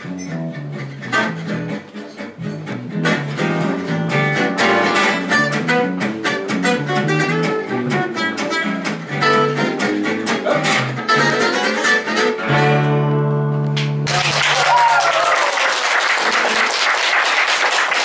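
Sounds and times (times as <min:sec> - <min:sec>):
bass line: 0:00.0 - 0:14.1
lead guitar melody: 0:00.0 - 0:14.1
rhythm guitar: 0:00.0 - 0:14.2.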